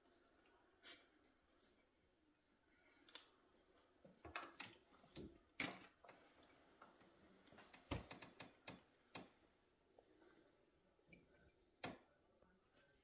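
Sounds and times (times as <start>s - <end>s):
quiet clicks and taps: 3.0s - 10.1s, 11.0s - 13.0s.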